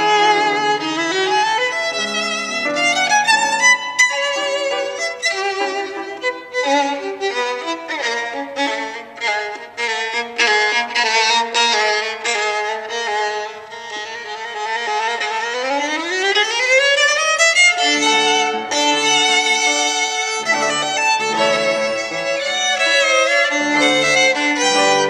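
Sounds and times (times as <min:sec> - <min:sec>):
piano accompaniment: 0:00.0 - 0:09.9, 0:17.5 - 0:25.0
solo violin: 0:00.0 - 0:25.0.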